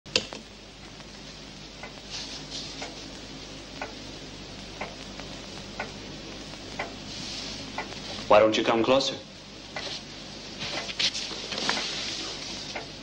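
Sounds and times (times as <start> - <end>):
low steady hum: 0.1 - 13.0
clock ticking: 4.8 - 7.0, 12.7 - 13.0.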